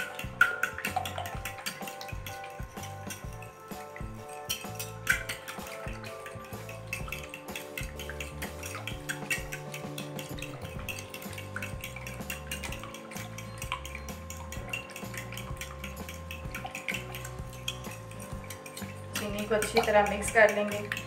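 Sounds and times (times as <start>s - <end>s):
spoon clinking in glass bowl: 0.0s - 21.0s.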